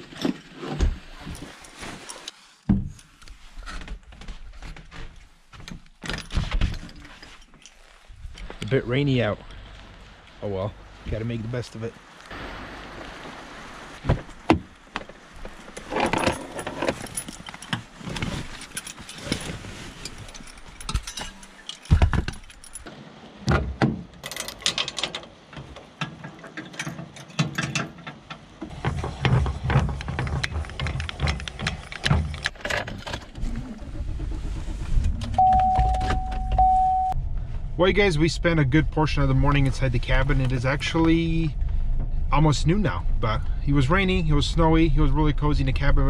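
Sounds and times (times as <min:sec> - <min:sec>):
clinks and knocks of handling: 0:15.8 - 0:22.9, 0:24.2 - 0:28.5
steady low rumble: 0:33.4 - 0:46.0.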